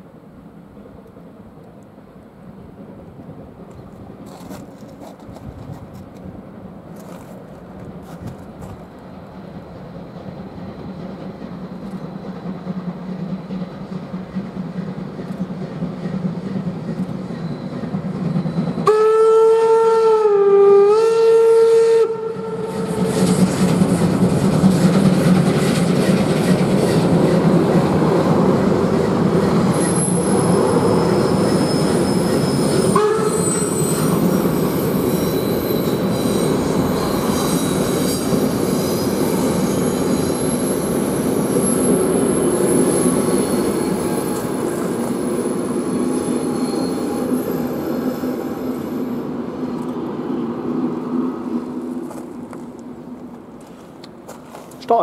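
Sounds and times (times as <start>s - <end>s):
train rumble and wheel clatter: 0.0s - 55.0s
steam locomotive whistle: 17.4s - 23.4s, 29.7s - 49.2s.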